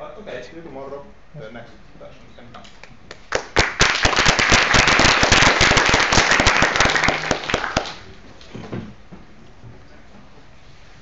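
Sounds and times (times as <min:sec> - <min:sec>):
audience applauding: 0:03.2 - 0:08.1.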